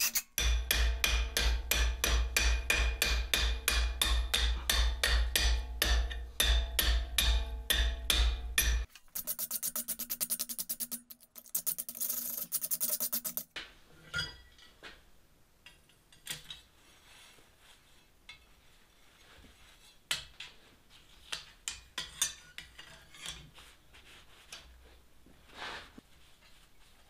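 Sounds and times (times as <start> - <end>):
rag rubbing on metal: 0.0 - 0.4, 9.1 - 13.4
scrubbing on steel: 8.9 - 13.4.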